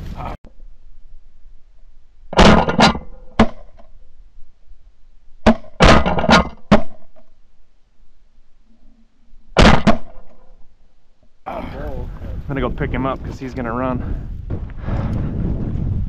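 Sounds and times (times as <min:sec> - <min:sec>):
shotgun shots: 0:09.6 - 0:10.2.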